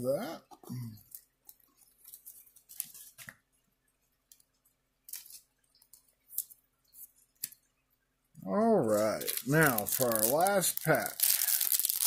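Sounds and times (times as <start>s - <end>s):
cards being handled: 1.1s - 3.4s, 8.9s - 12.0s.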